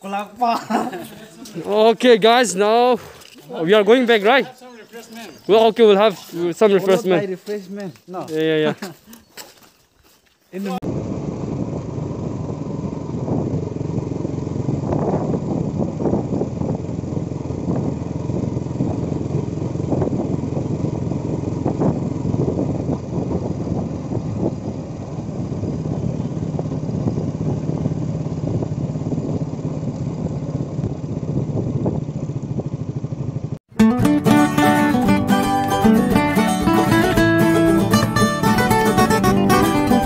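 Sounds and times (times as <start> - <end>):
motorcycle engine running: 10.7 - 40.0.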